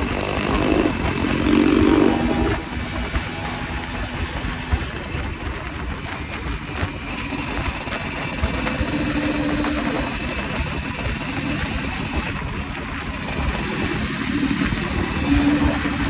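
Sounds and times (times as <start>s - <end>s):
two-stroke dirt bike engine: 0.0s - 16.0s
wind rushing over microphone: 0.0s - 16.0s.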